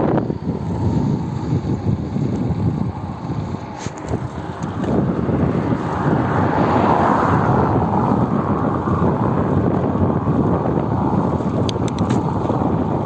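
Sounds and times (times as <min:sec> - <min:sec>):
broad rushing noise: 0:00.0 - 0:13.0
wind rumbling on microphone: 0:00.0 - 0:13.0.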